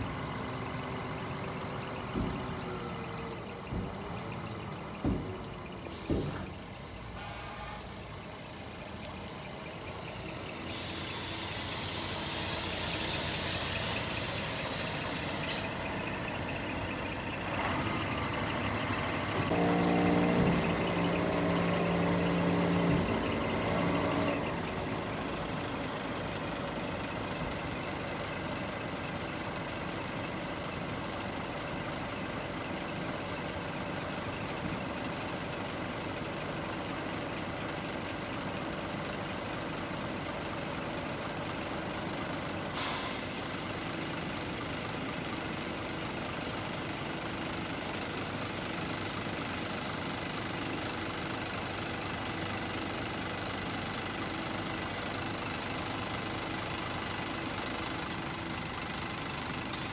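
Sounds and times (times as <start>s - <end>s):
diesel engine idling: 0.0s - 59.9s
air hiss: 10.7s - 15.9s, 42.8s - 43.6s.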